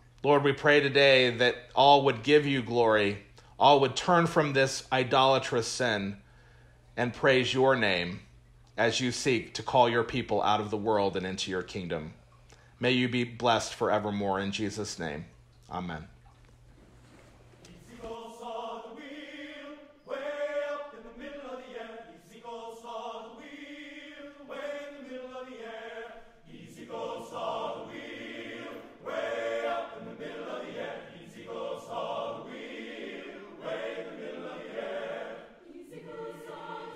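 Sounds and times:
choir singing in harmony: 0:17.6 - 0:36.9.

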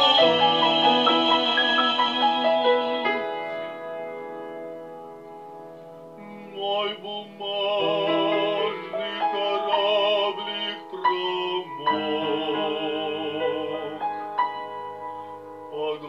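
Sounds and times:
man singing with vibrato: 0:00.0 - 0:03.8, 0:06.4 - 0:14.4, 0:15.7 - 0:16.0
grand piano accompaniment: 0:00.0 - 0:16.0.

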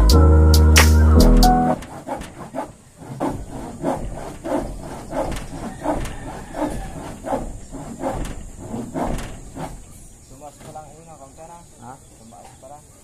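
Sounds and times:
short rasping strokes: 0:00.8 - 0:10.5.

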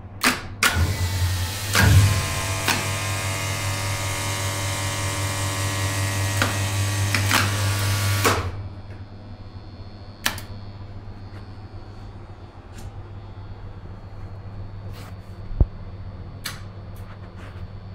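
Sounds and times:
loud mains hum: 0:00.0 - 0:17.9
hissing pump motor: 0:00.6 - 0:13.0.

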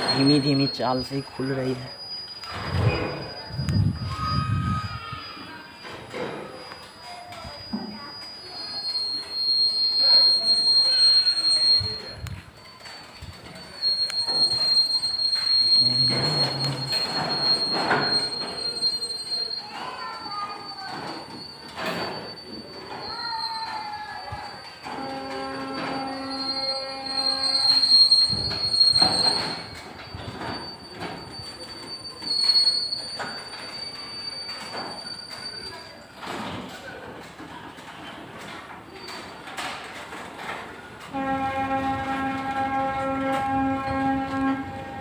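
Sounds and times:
wheels and couplings clanking: 0:00.0 - 0:03.9, 0:05.7 - 0:45.0
freight train wagons rumbling: 0:00.0 - 0:45.0
high-pitched whine: 0:13.7 - 0:18.1.

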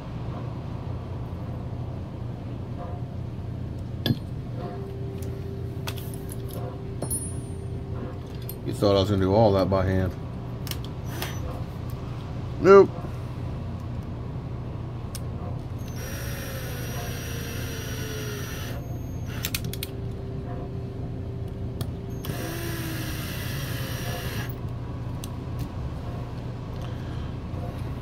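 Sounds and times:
electric screwdriver driving screws: 0:15.8 - 0:19.6, 0:22.2 - 0:24.5.

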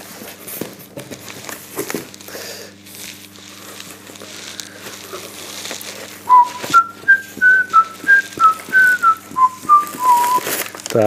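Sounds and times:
person whistling a tune: 0:06.3 - 0:10.6.

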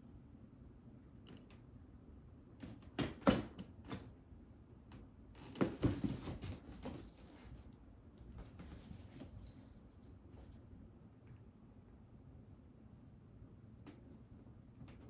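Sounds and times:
cat paws scrabbling on cardboard: 0:05.6 - 0:07.6.

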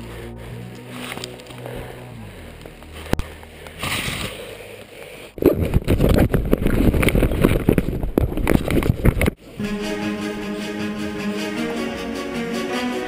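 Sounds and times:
rubbing and crackling on microphone: 0:02.7 - 0:09.4.

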